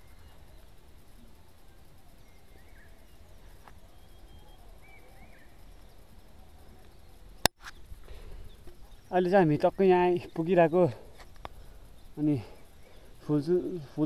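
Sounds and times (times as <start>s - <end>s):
distant bird chirps: 0.0s - 14.0s
sharp click: 7.4s - 7.8s.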